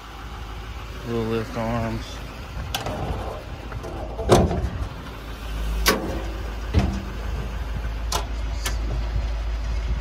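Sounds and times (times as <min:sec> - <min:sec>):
low rumble: 0:01.8 - 0:10.0
metal lid clunking shut: 0:02.7 - 0:04.9, 0:05.8 - 0:07.1.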